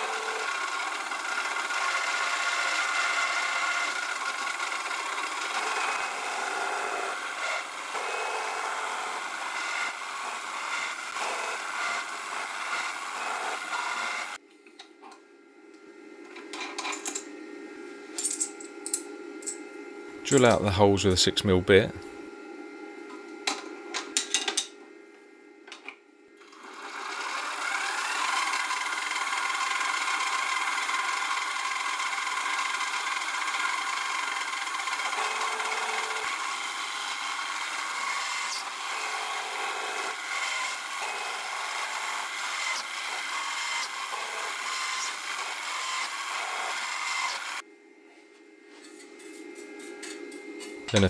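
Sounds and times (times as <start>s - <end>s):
mill motor whining: 0.0s - 14.4s, 26.4s - 47.6s.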